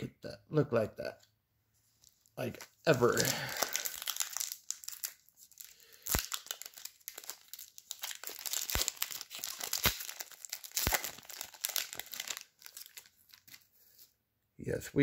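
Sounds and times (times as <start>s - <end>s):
trading cards rustling: 1.9s - 14.1s.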